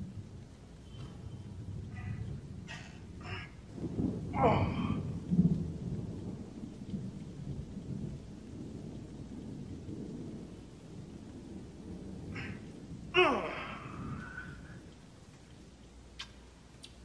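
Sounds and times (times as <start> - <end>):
thunder crack and rumble: 0.0 - 16.1.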